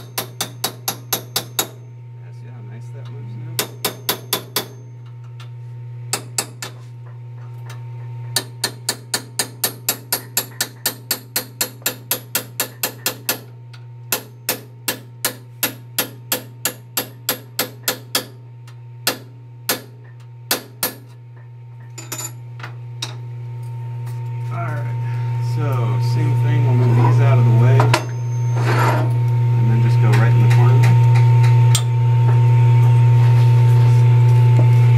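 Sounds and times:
hammer striking metal: 0:00.0 - 0:01.9, 0:03.6 - 0:05.1, 0:08.4 - 0:13.5, 0:14.1 - 0:18.4, 0:19.0 - 0:21.1
steady low hum: 0:00.0 - 0:34.9.

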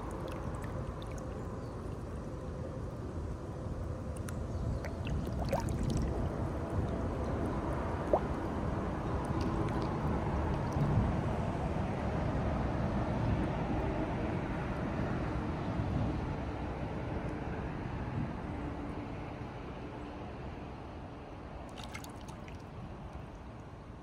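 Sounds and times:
water splashing and gurgling: 0:00.0 - 0:02.5, 0:04.0 - 0:11.4, 0:21.7 - 0:22.8
steady low rumble: 0:00.0 - 0:12.8.

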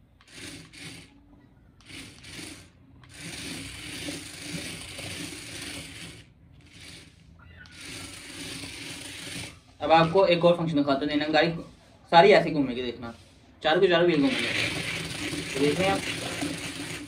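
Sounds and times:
small electric motors whirring: 0:00.0 - 0:17.0
toy car wheels rattling: 0:00.0 - 0:17.0.

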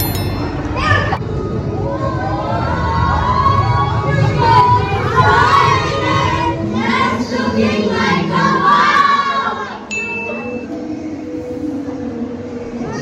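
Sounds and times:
crowd talking and calling out: 0:00.0 - 0:11.2
short high beep: 0:09.9 - 0:10.8.

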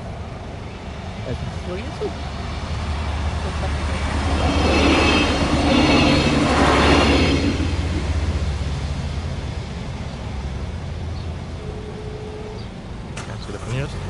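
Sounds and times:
train passing at speed: 0:00.0 - 0:14.0
high ringing of train wheels: 0:02.9 - 0:09.4.

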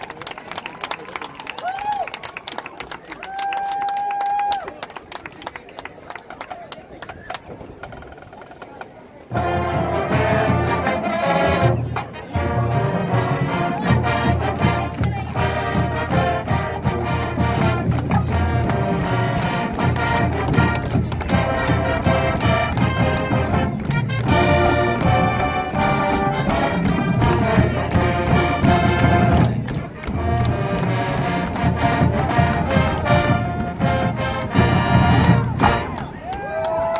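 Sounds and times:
marching band playing brass piece: 0:09.3 - 0:36.2.

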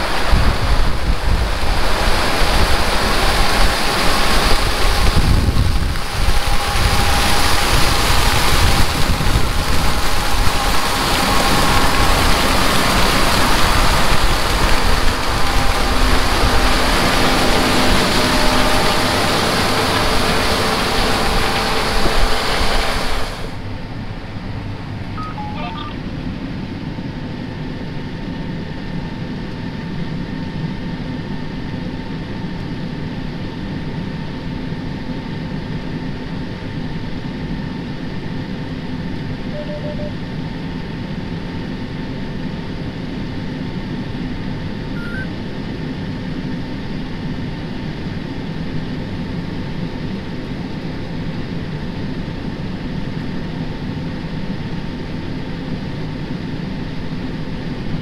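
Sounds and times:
combine drone inside cab: 0:00.0 - 0:58.0
combine engine and threshing noise: 0:00.0 - 0:58.0
faint steady whine: 0:00.0 - 0:58.0
short electronic beeps: 0:25.2 - 0:26.0, 0:39.5 - 0:40.2, 0:45.0 - 0:45.4.

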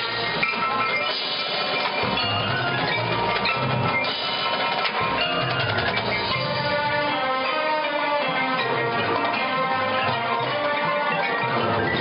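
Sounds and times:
quick percussion strokes: 0:00.0 - 0:07.6
drums and mallet percussion: 0:00.0 - 0:12.0
marching band playing: 0:00.0 - 0:12.0.

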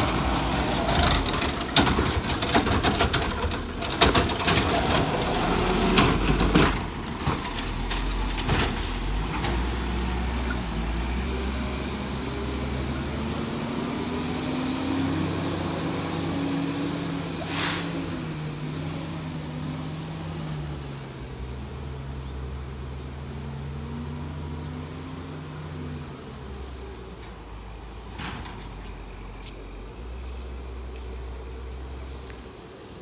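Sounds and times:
diesel truck engine: 0:00.0 - 0:33.0
air brakes hissing: 0:17.0 - 0:18.8.

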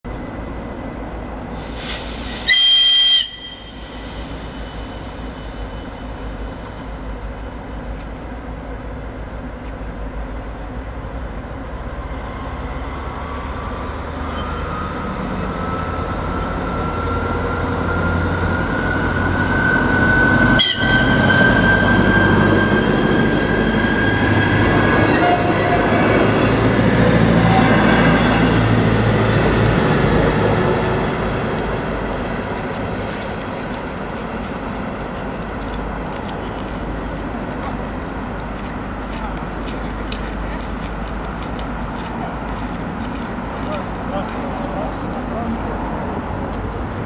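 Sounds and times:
diesel train engine whine: 0:00.0 - 0:47.0
train horn blast: 0:02.5 - 0:04.0, 0:20.6 - 0:21.9, 0:24.4 - 0:26.5, 0:27.2 - 0:28.6.

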